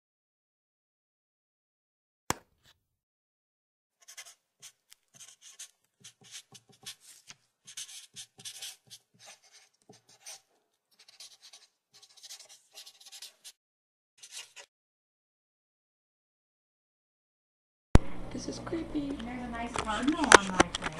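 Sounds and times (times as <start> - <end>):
marker pen strokes on tape: 4.0 - 13.6, 14.2 - 14.7.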